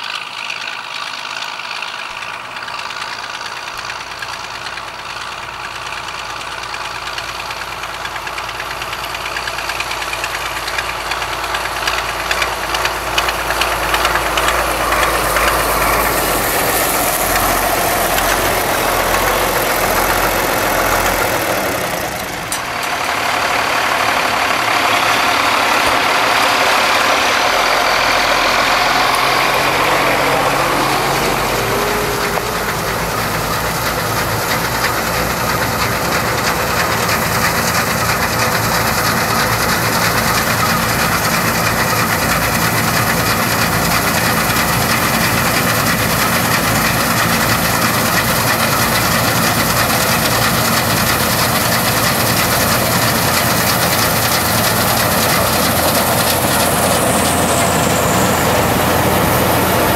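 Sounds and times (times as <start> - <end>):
tractor diesel engine clattering: 0.0 - 59.9.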